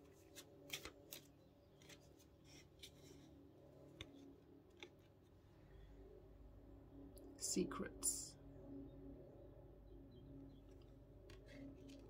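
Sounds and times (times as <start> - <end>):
cards being shuffled: 0.0 - 3.3, 3.9 - 5.3, 11.3 - 12.0.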